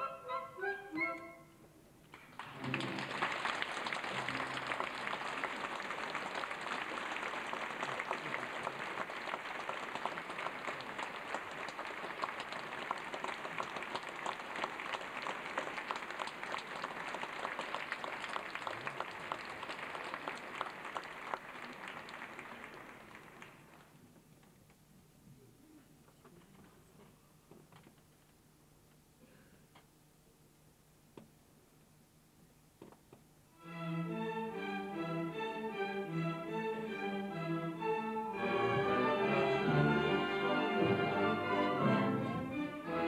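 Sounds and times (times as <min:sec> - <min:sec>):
audience applauding: 0:02.3 - 0:23.9.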